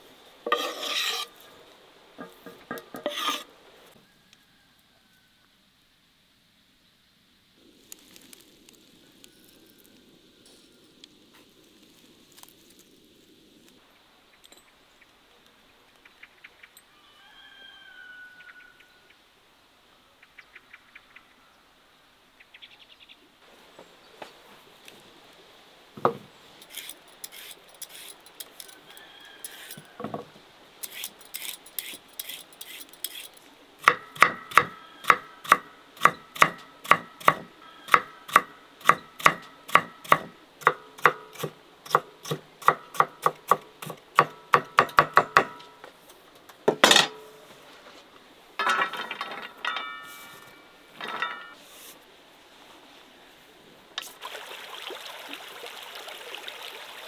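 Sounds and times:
knocks and scrapes: 0.4s - 1.6s, 2.2s - 3.5s, 45.5s - 52.0s.

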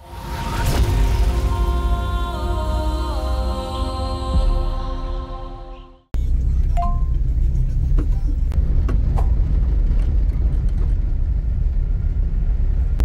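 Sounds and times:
vehicle rumbling over unpaved road: 6.2s - 13.0s.

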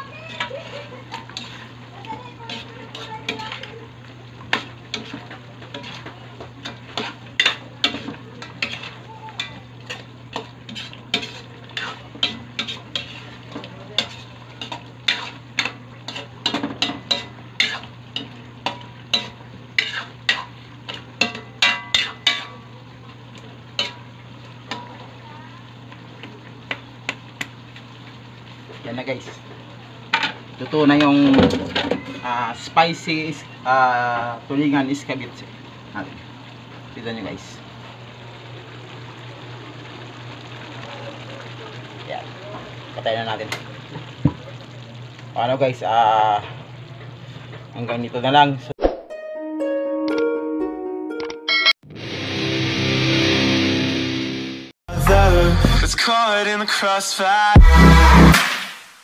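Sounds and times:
sauce bubbling and sizzling: 0.0s - 48.4s
utensil clinking and scraping pan: 0.2s - 3.8s, 4.5s - 22.6s.

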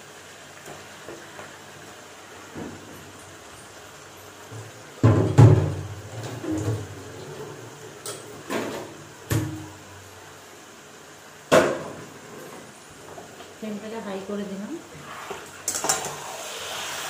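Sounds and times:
kitchen items knocking and banging: 4.6s - 7.0s.

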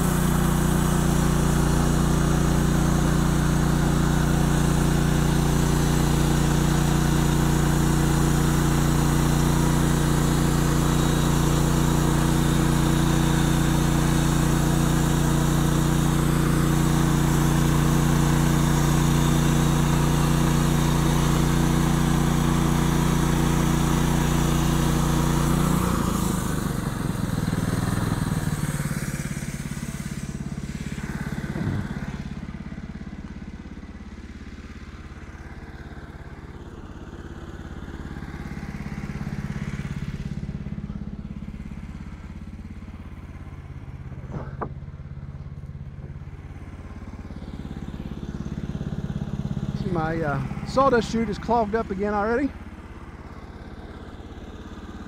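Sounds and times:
band blade sawing through log: 0.0s - 32.7s, 49.8s - 52.4s
engine idling: 0.0s - 55.0s
sawmill engine running hard: 0.0s - 55.0s.

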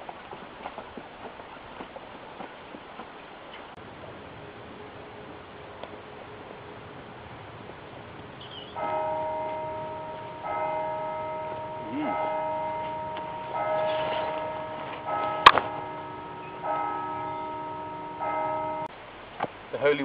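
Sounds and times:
church bell tolling: 8.7s - 18.9s.

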